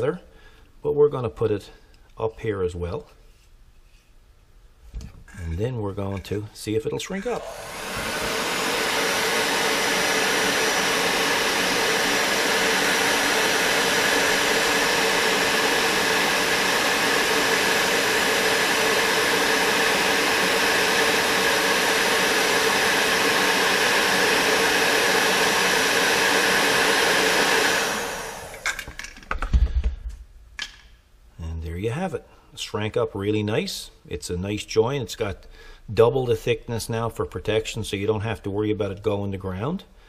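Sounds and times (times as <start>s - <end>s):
electric heat gun blowing: 7.2s - 29.2s.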